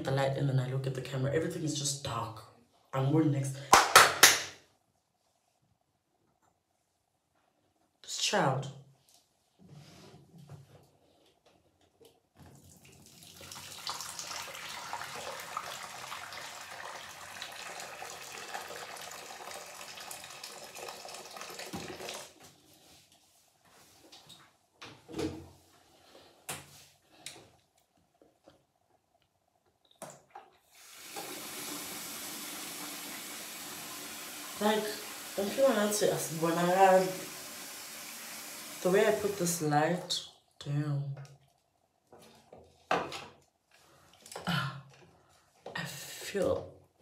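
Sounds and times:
tap running into a sink: 18.6 - 22.3, 31.0 - 35.3.

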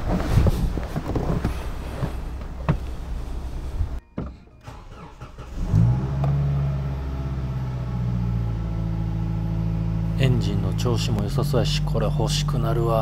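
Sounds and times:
van engine starting and idling: 0.0 - 13.0.

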